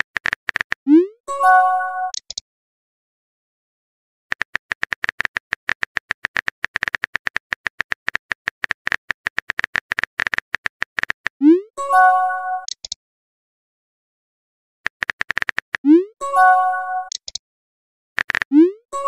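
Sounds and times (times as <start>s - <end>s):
keyboard typing clicks: 0.0s - 1.0s, 2.1s - 2.4s, 4.3s - 11.6s, 12.6s - 13.0s, 14.9s - 16.0s, 17.0s - 17.4s, 18.2s - 18.8s
message chime: 1.3s - 2.1s, 11.5s - 12.7s, 16.2s - 17.1s.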